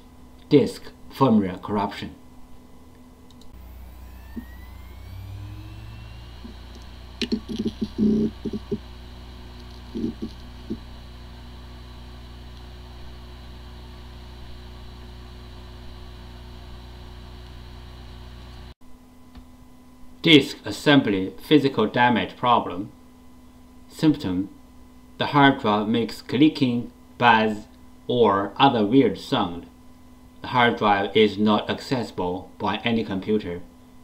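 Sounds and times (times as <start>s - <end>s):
hard drive spinning hum: 0.0s - 21.5s
hard drive whine: 0.0s - 34.0s
hard drive sharp clicks: 5.8s - 11.4s.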